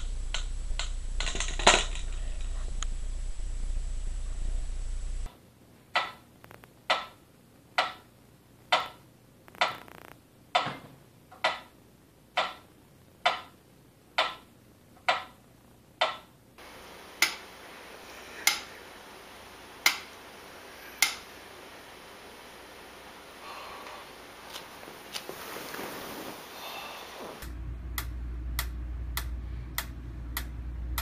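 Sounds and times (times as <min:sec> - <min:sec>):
metronome ticking: 0:06.9 - 0:07.2, 0:07.8 - 0:08.1, 0:08.7 - 0:09.0, 0:12.4 - 0:13.6, 0:14.2 - 0:15.3, 0:19.8 - 0:20.2.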